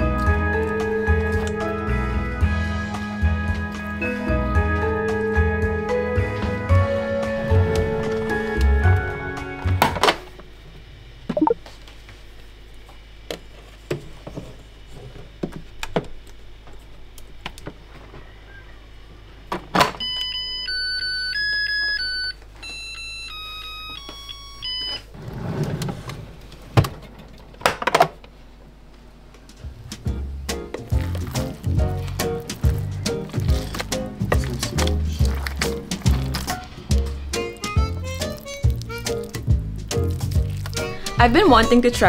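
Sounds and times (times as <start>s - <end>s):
electronic beeping tune: 11.4s - 11.6s.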